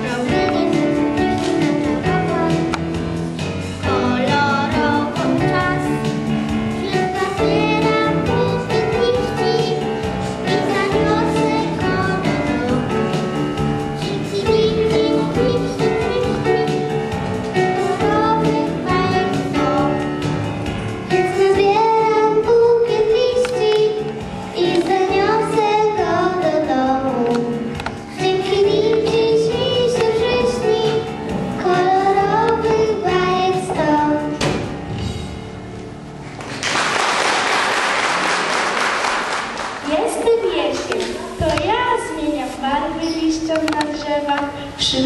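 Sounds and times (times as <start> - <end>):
children singing into microphones: 0.0 - 20.4, 21.1 - 34.6
backing music: 0.0 - 45.0
applause: 36.4 - 40.0.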